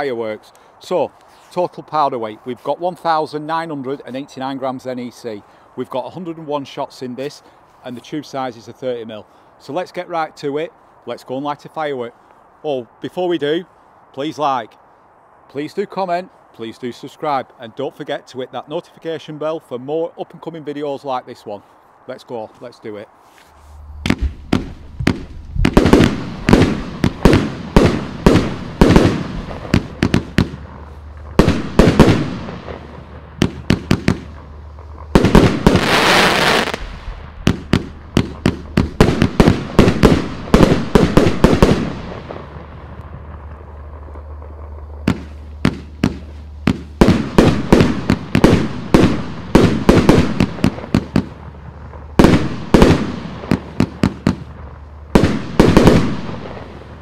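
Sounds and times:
hissing crackle of fireworks: 23.2 - 57.0
fireworks launching and bursting: 23.8 - 57.0.

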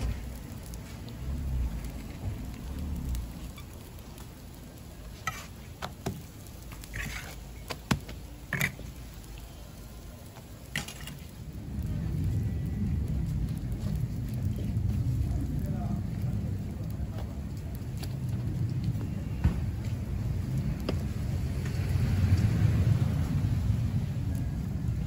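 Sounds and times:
pancakes sizzling in oil: 0.0 - 11.5.

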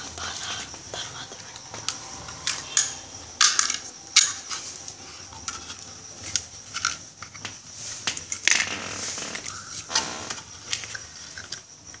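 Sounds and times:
small parts clicking in wooden box: 10.6 - 12.0.

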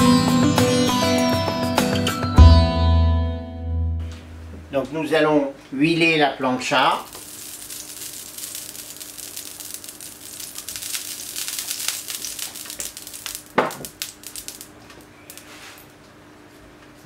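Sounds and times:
oil sizzling on hot griddle: 7.0 - 15.9.

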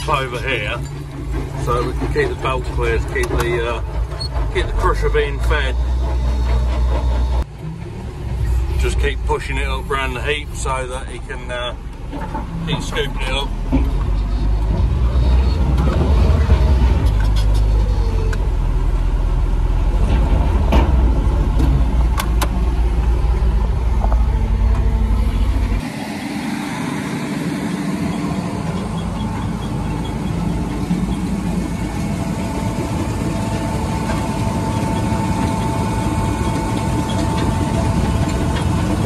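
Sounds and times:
concrete crusher running: 0.0 - 7.4, 22.9 - 39.0
steady whine: 0.0 - 39.0
tractor diesel engine rumble: 0.0 - 39.0.

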